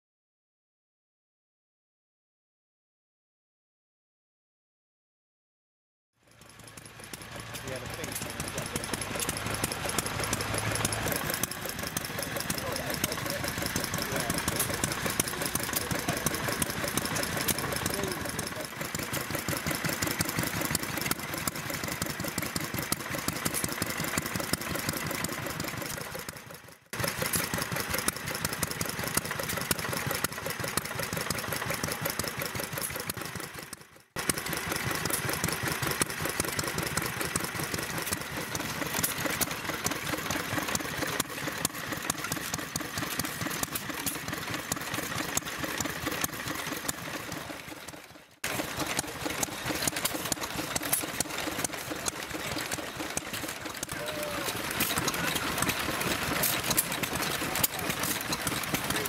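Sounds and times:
stationary engines running: 6.2 - 59.0.

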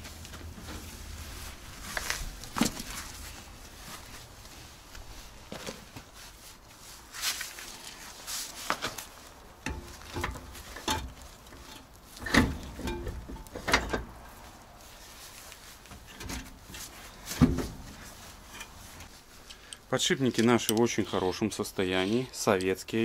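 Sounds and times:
metal scraping: 9.7 - 19.1.

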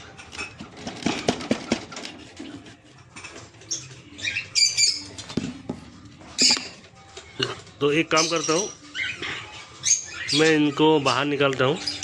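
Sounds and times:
lovebird shrill squawks: 8.2 - 11.2.

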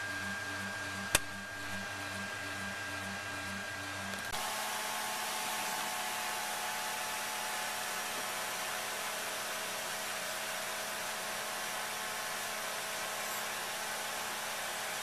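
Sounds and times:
faint hum: 0.0 - 7.6.

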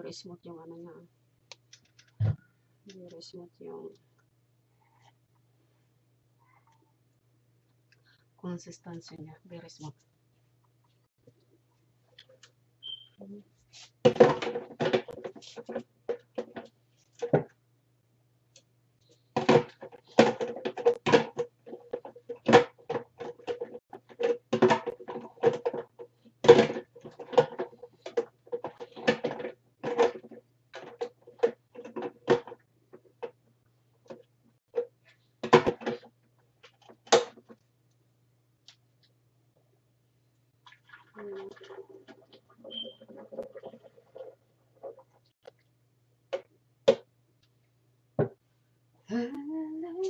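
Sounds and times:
plastic blender parts knocking: 14.1 - 17.6, 19.4 - 33.4, 34.1 - 36.1.

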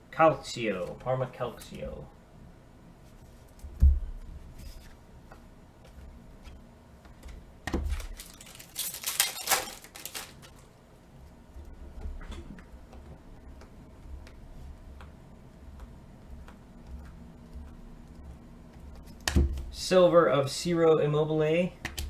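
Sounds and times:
foil wrapper crinkling: 7.9 - 10.7.

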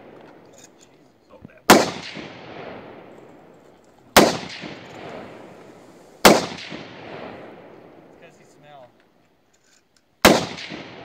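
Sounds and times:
rifle shots with echo: 1.6 - 8.3, 10.2 - 11.0.

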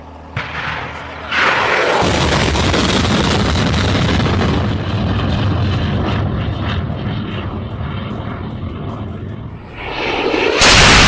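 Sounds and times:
rocket motor roaring: 1.2 - 11.0.

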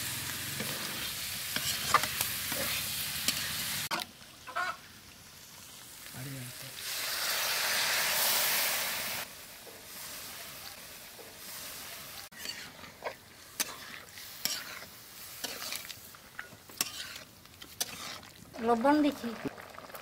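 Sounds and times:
food sizzling: 0.0 - 20.0
metal spatula scraping pan: 0.5 - 3.6, 11.7 - 18.4
liquid hissing in hot pan: 5.7 - 12.8.

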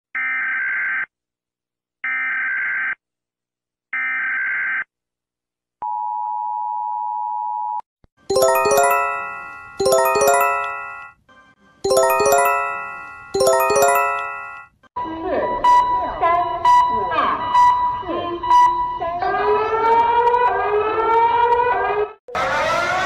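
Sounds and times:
ringing alert chime: 8.3 - 11.2, 11.9 - 14.7.

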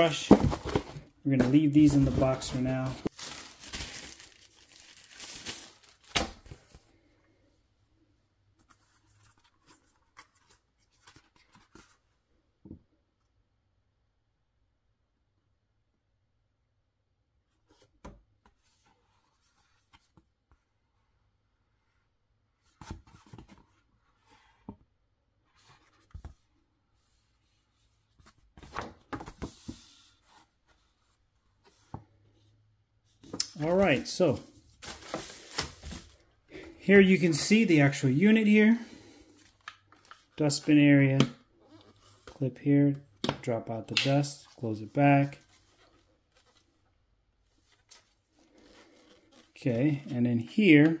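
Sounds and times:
packaging crinkling and rustling: 0.2 - 6.7
paper rustling: 0.2 - 6.8, 33.2 - 36.2.

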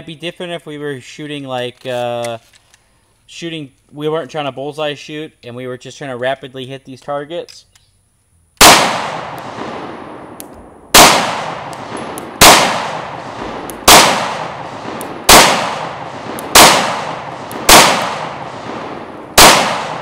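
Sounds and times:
pistol shots echoing: 8.6 - 20.0.

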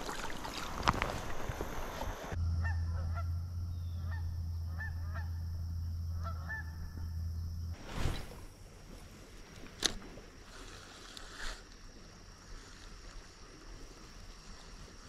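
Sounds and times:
rushing water: 0.0 - 2.4
steady low hum: 0.2 - 10.6
geese honking: 2.5 - 7.2.

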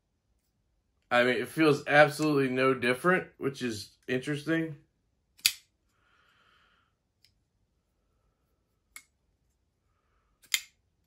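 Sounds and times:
folding knife blade clicking: 5.4 - 5.6, 10.4 - 10.8.

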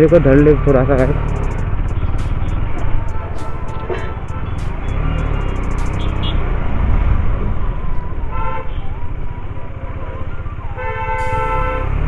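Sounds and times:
vehicle horn: 2.5 - 6.5, 10.8 - 12.0.

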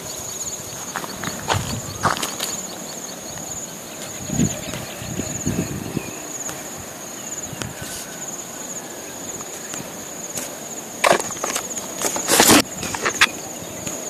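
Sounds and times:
insect trilling: 0.0 - 14.0
footsteps on gravel: 0.8 - 2.7, 10.3 - 13.3.

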